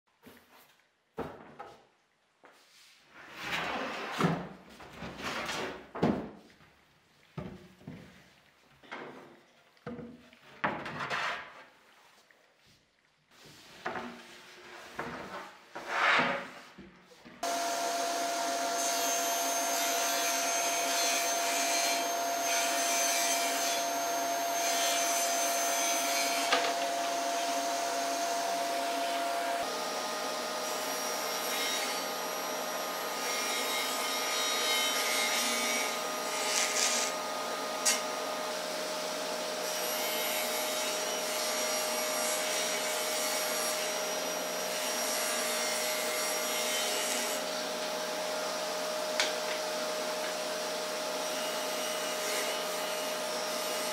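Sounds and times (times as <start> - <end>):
table saw whining: 17.4 - 53.9.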